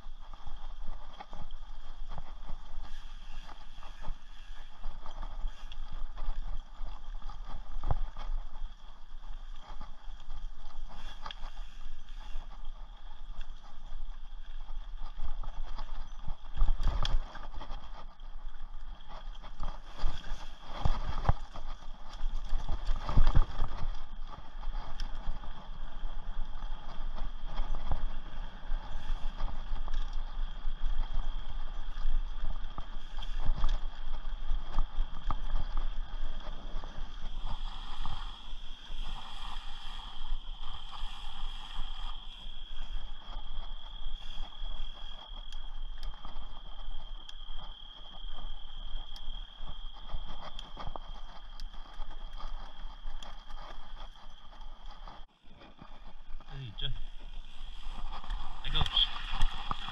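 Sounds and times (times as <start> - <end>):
bike rattling over dirt trail: 0.0 - 59.9
high insect drone: 19.5 - 59.9.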